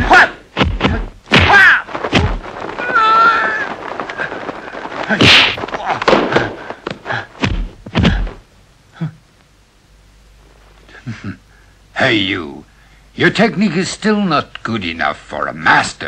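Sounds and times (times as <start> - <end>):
man shouting: 0.0 - 1.9
punch and block impacts: 0.0 - 3.7, 5.0 - 8.4.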